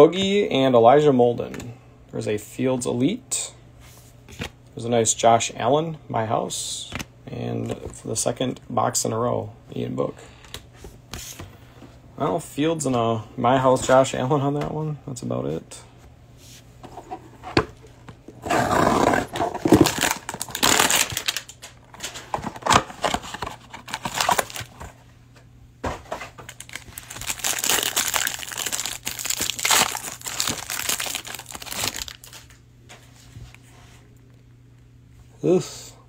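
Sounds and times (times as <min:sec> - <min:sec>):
cardboard box tearing: 0:18.5 - 0:21.4
plastic wrap crinkling: 0:19.3 - 0:24.9, 0:26.4 - 0:32.6.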